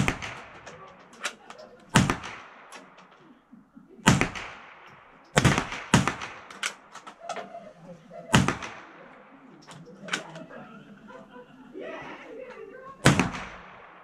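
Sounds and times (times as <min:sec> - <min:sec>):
rifle shots cracking: 0:00.0 - 0:03.4, 0:04.0 - 0:07.2, 0:08.2 - 0:10.3, 0:13.0 - 0:14.0
faint distant shots and clicks: 0:00.0 - 0:10.8, 0:13.0 - 0:14.0.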